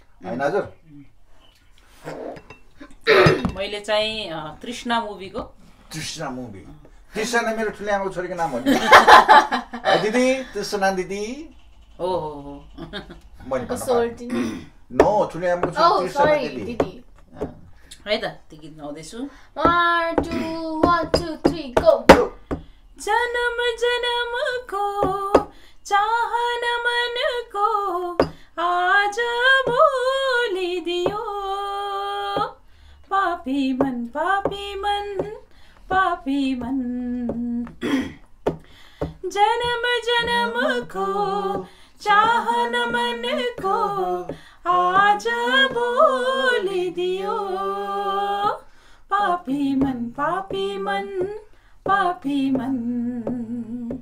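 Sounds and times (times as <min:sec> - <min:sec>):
person singing unaccompanied: 0:12.0 - 0:17.5, 0:19.6 - 0:22.4, 0:23.0 - 0:54.0.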